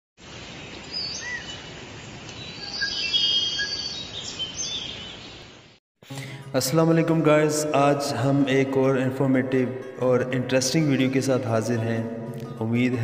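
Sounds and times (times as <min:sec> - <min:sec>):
steady background hiss: 0:00.2 - 0:05.7
birds chirping and whistling: 0:00.9 - 0:01.6, 0:02.4 - 0:05.5.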